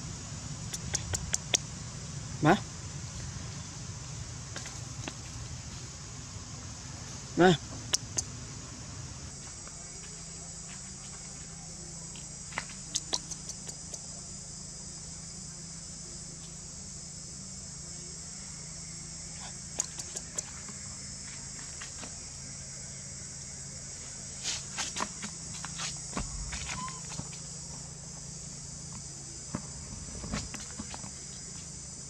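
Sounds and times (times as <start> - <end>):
high-pitched insect chorus: 0.0 - 32.0
sharp clicks: 0.7 - 1.6, 7.9 - 8.3, 12.9 - 14.0, 19.8 - 20.5.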